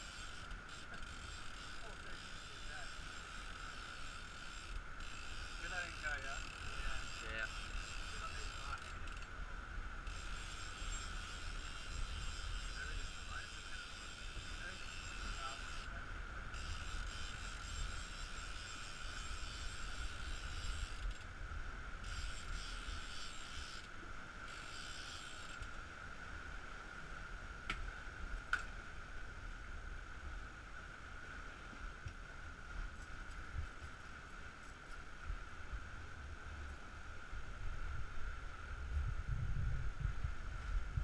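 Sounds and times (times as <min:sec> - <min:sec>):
wind and wake water rushing: 0:00.0 - 0:41.0.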